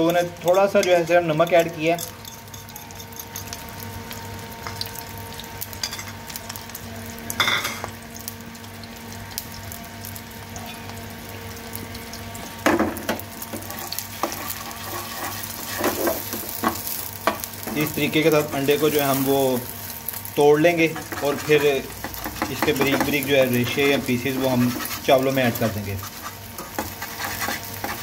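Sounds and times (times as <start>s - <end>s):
egg sizzling in a pan: 0.0s - 28.0s
spatula scraping a pan: 13.5s - 19.4s, 20.7s - 28.0s.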